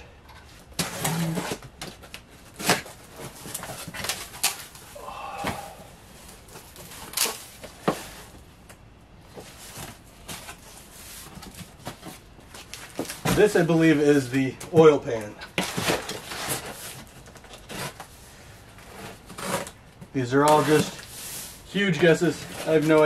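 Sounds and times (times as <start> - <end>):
cardboard box scraping rustles: 0.4 - 4.9, 15.6 - 19.8.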